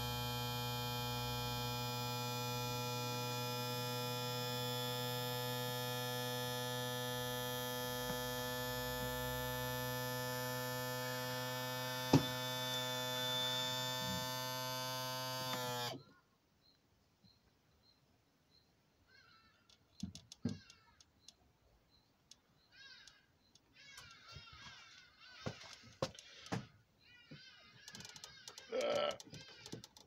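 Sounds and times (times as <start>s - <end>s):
electric pump motor humming: 0.0s - 16.0s.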